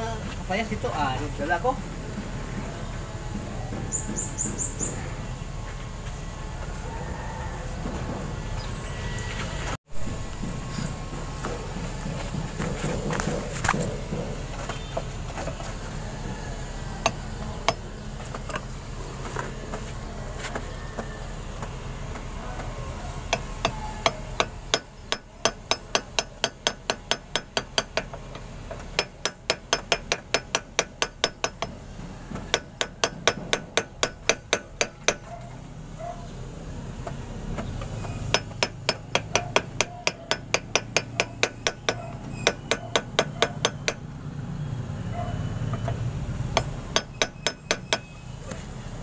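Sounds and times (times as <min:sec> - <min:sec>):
hammer tapping steel rod: 0:23.3 - 0:28.2, 0:29.0 - 0:31.8, 0:32.5 - 0:35.3, 0:38.3 - 0:44.0, 0:46.6 - 0:48.1.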